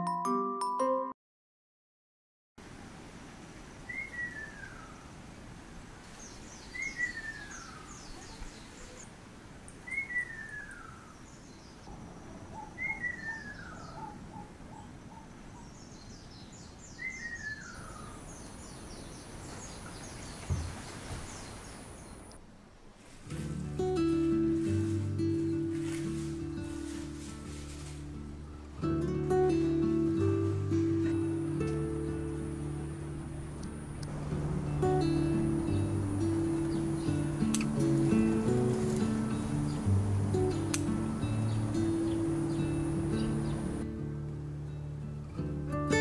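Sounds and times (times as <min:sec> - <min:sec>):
steady outdoor hiss: 0:02.6 - 0:46.0
small birds chirping: 0:06.0 - 0:22.4, 0:34.8 - 0:43.8.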